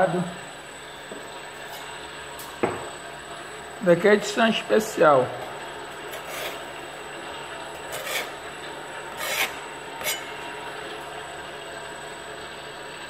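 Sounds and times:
machine mechanical hum: 0:00.0 - 0:13.0
short rasping scrapes: 0:06.1 - 0:06.7, 0:07.9 - 0:08.4, 0:09.1 - 0:10.4.

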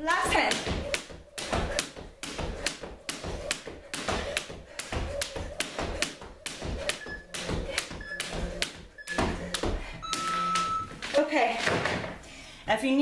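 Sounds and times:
jump rope slapping wooden floor: 0:00.1 - 0:12.1
timer beeps: 0:06.9 - 0:11.0.

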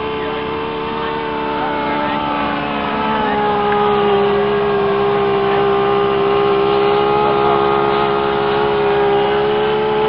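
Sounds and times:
model plane propeller drone: 0:00.0 - 0:10.0.

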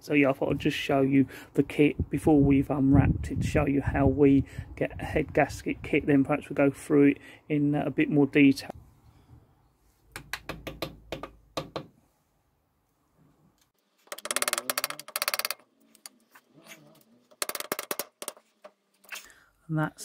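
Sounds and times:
screwdriver clicks and knocks: 0:14.1 - 0:15.6, 0:17.4 - 0:18.4.

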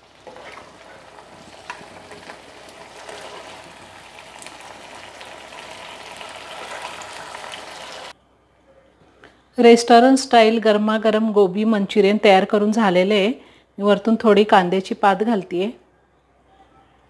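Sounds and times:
steel spoon scraping a pan: 0:00.0 - 0:03.8
cauliflower sizzling in a wok: 0:00.0 - 0:08.1.

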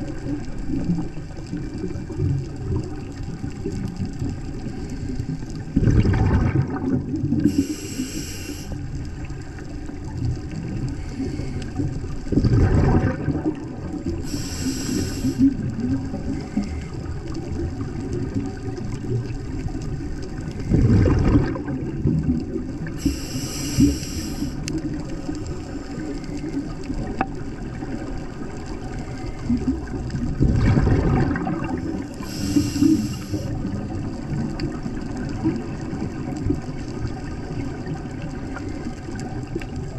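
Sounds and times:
underwater hum: 0:00.0 - 0:39.9
bubbling exhaled air: 0:04.6 - 0:39.9
regulator hissing inhalation: 0:07.4 - 0:08.8, 0:14.2 - 0:15.6, 0:23.0 - 0:24.7, 0:32.1 - 0:33.6.

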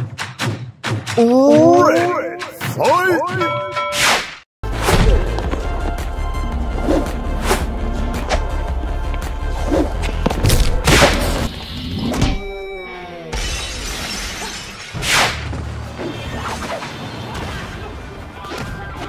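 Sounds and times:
music: 0:00.0 - 0:01.2, 0:04.6 - 0:13.0.

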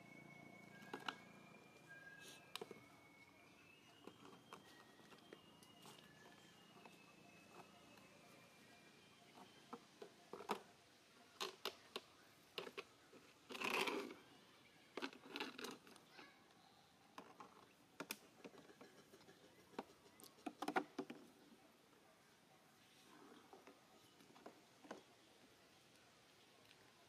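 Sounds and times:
faint clicks and smacks: 0:17.1 - 0:21.5.

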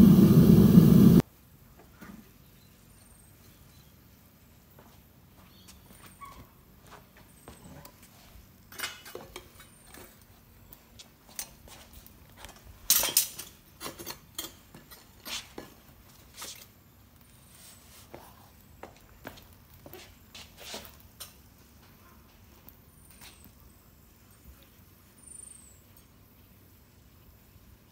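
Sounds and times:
metal tongs clinking on crucible: 0:12.9 - 0:15.1.

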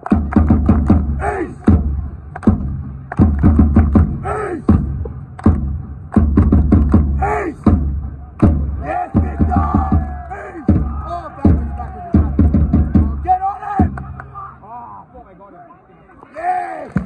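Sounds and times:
bass drum beating: 0:00.1 - 0:14.2
crowd shouting a chant: 0:01.1 - 0:02.2, 0:04.2 - 0:04.7, 0:07.2 - 0:14.9, 0:16.2 - 0:17.0.

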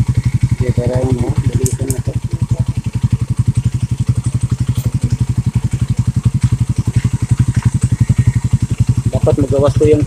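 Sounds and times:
motorcycle engine idling: 0:00.0 - 0:10.0.

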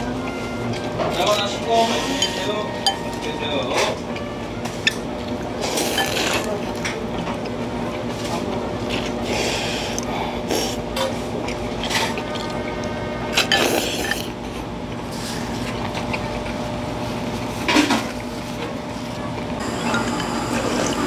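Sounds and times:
low background hum: 0:00.0 - 0:21.0
noodles being slurped: 0:05.4 - 0:06.9, 0:07.5 - 0:18.5.

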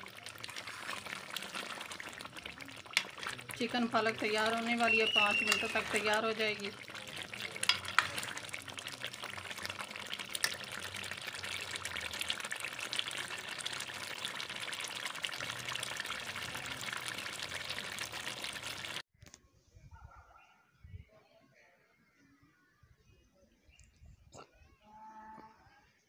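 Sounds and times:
curry boiling and popping: 0:00.0 - 0:19.0.

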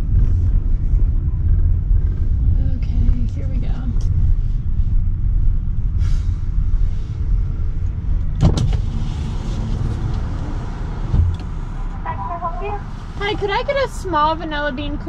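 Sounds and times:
car engine rumble inside cabin: 0:00.0 - 0:15.0
sharp clunk: 0:08.4 - 0:08.9.

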